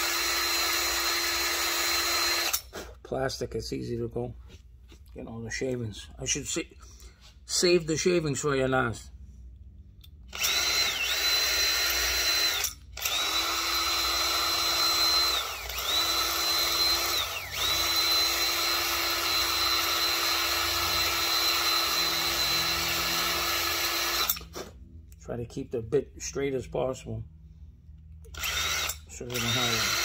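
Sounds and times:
power drill cutting plastic: 0.0s - 2.8s, 10.3s - 24.7s, 28.3s - 30.0s.

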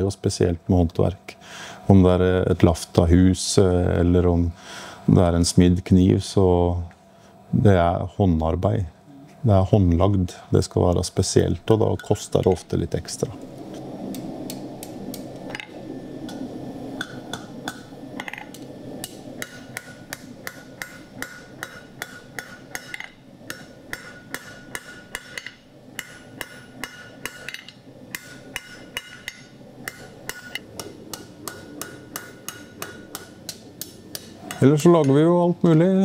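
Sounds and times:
hammer striking steel on anvil: 17.0s - 35.2s.

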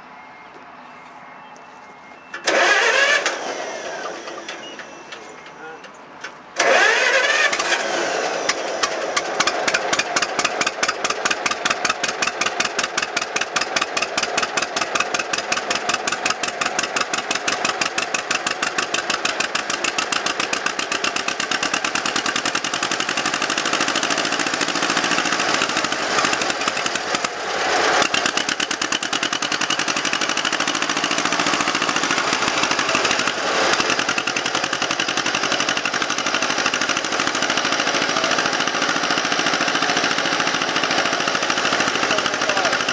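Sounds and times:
tractor engine popping: 2.3s - 3.4s, 4.0s - 42.9s.

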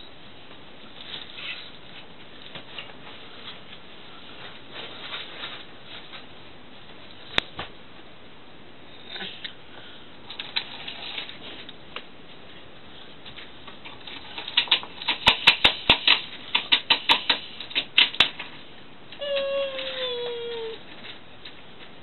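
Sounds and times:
toy train cars clicking on wood: 13.9s - 18.5s.

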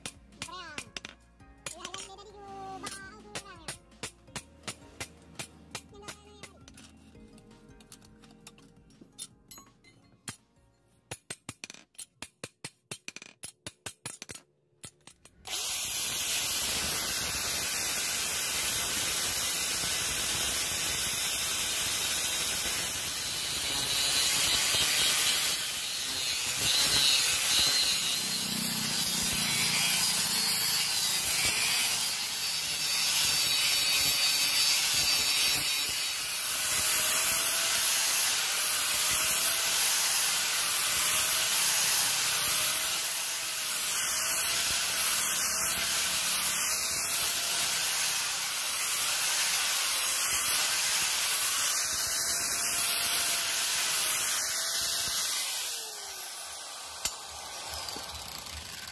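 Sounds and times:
hammer striking steel blade: 0.0s - 7.0s, 57.0s - 57.2s
angle grinder grinding metal: 15.2s - 58.9s.

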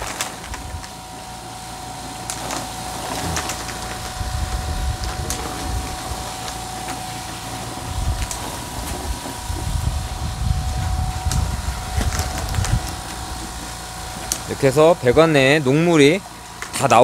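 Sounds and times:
machine hum: 0.0s - 17.0s
uneven low rumble: 7.8s - 13.6s.

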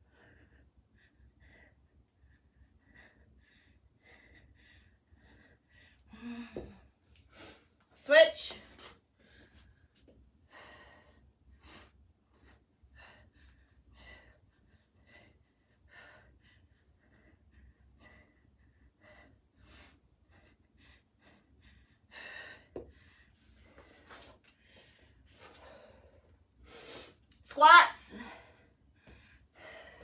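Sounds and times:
person breathing with effort: 28.1s - 30.0s.

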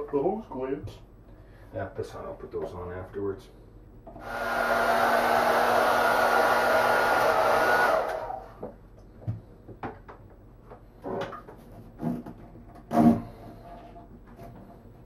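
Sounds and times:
hair dryer blowing: 4.2s - 8.7s.

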